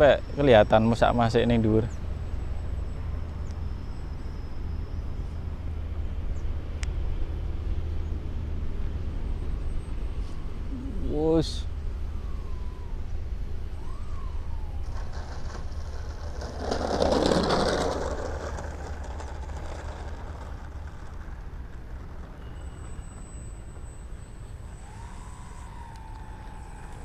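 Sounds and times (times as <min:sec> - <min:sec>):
electric motor and propeller whine: 0:11.7 - 0:27.0.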